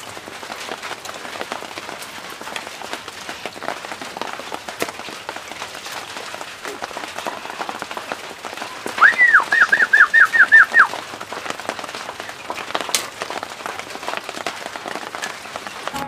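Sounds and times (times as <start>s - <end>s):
bird calling: 8.6s - 11.0s.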